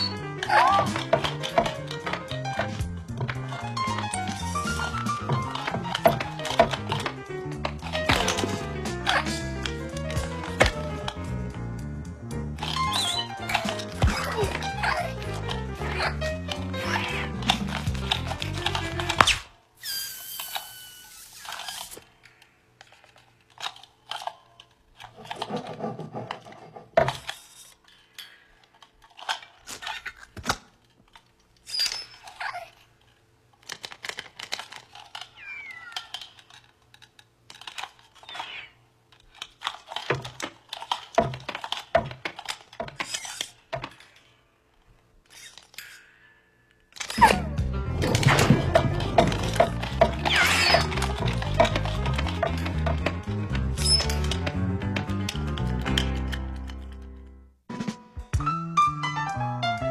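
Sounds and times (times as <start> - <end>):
squeaky spring joints creaking: 0.0 - 11.3, 12.6 - 22.2, 31.6 - 32.9, 34.0 - 44.4, 45.2 - 46.2, 46.9 - 57.0
air squealing from deflating ball: 19.2 - 22.0.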